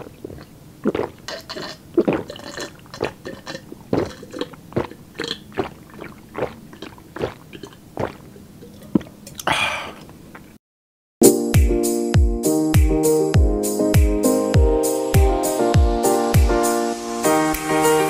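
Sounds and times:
person gulping water: 0.0 - 10.6
breathy exhale: 9.4 - 10.1.

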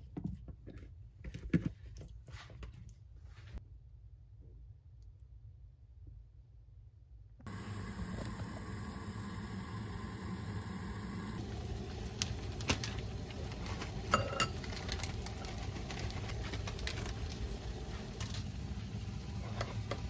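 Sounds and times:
kitchen appliance hum: 7.4 - 20.0.

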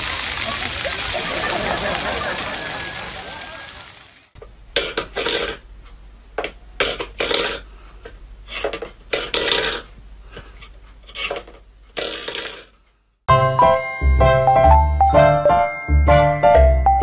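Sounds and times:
music with bell-like tones: 13.3 - 17.0.

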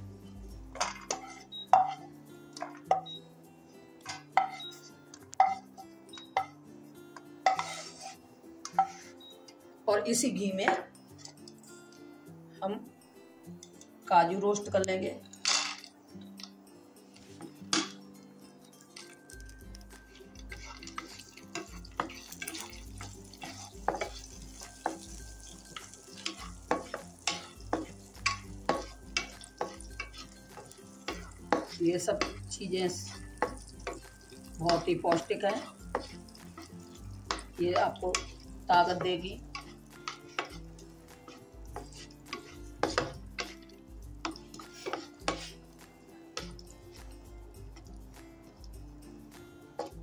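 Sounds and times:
nuts sizzling in oil: 0.7 - 3.0, 4.0 - 6.6, 7.4 - 9.2, 18.7 - 50.0
spatula scraping frying pan: 0.8 - 2.1, 4.1 - 5.8, 7.4 - 9.2, 20.0 - 45.8.

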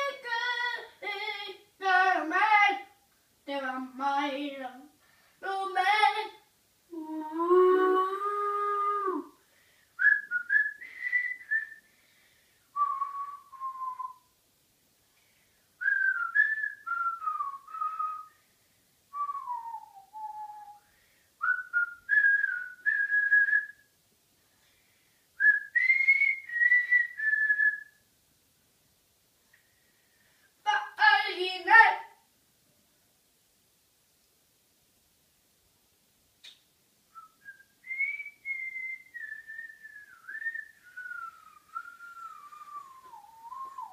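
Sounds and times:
person whistling a melody: 10.0 - 11.9, 12.8 - 14.3, 15.8 - 18.4, 19.1 - 23.9, 25.4 - 28.0, 37.1 - 43.9.

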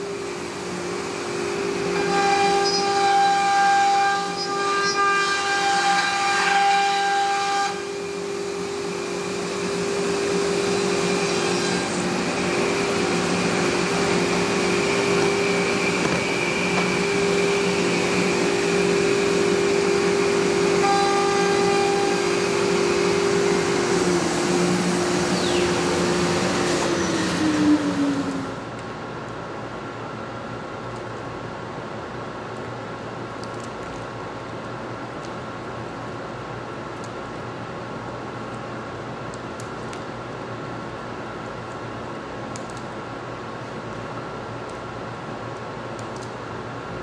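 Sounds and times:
router spindle whine: 0.0 - 28.7.

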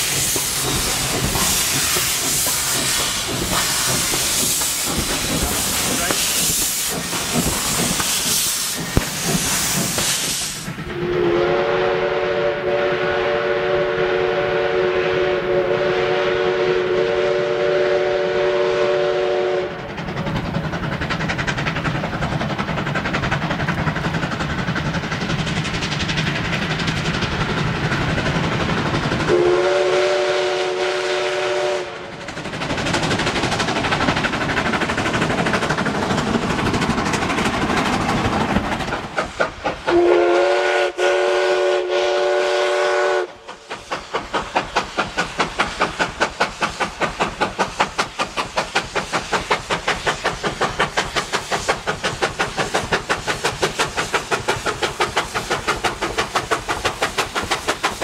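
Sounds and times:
steam locomotive exhaust chuffing: 0.0 - 58.0
steam locomotive whistle: 10.2 - 19.8, 29.3 - 32.1, 39.8 - 43.6.

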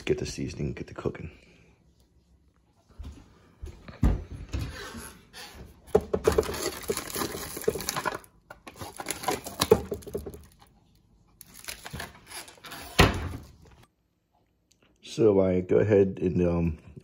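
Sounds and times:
packet crinkling and rustling: 6.2 - 10.7, 11.4 - 13.0.

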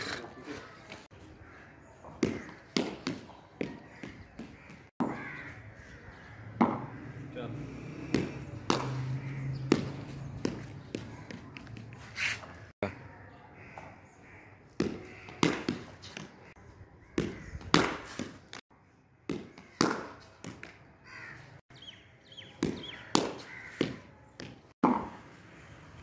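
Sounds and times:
wooden bat striking ball: 2.0 - 5.2, 6.6 - 7.0, 8.1 - 11.9, 14.8 - 16.4, 17.2 - 18.4, 19.3 - 20.8, 22.6 - 25.2
ball knocking on tiled floor: 6.6 - 7.0.

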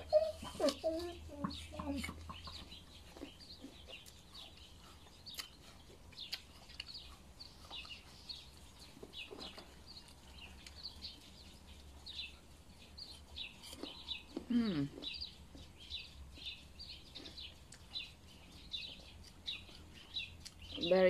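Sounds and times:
chewing and crunching apple: 0.0 - 20.9
small birds chirping: 0.0 - 21.0.

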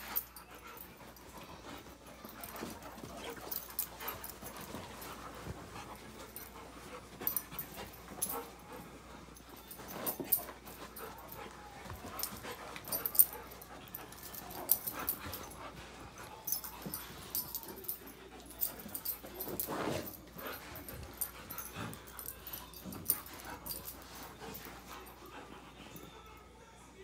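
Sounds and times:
dogs scuffling on carpet: 0.0 - 26.0.

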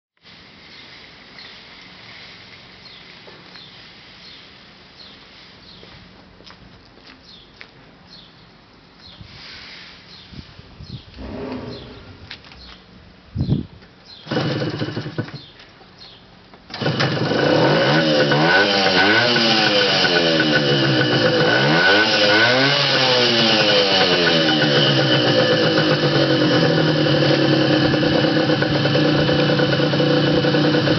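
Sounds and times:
two-stroke engine revving and idling: 11.2 - 12.1, 14.2 - 15.5, 16.7 - 30.9
engine kick-start: 14.2 - 15.5, 16.7 - 30.9.

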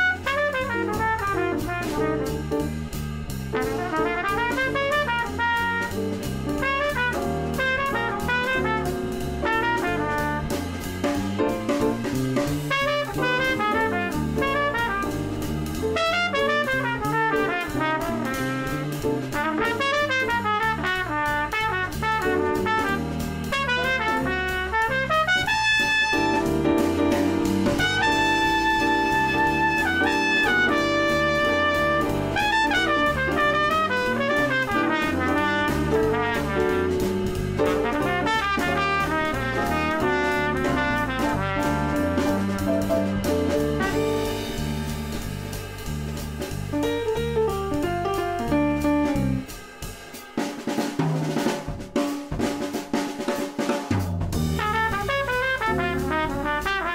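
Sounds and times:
trumpet-like brass lead: 0.0 - 49.6, 54.4 - 56.9
drums: 0.0 - 56.9.

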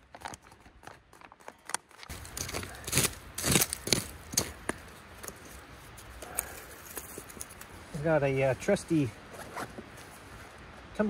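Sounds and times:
gear rustling and clicking: 0.0 - 7.8
low steady background noise: 0.0 - 11.0.

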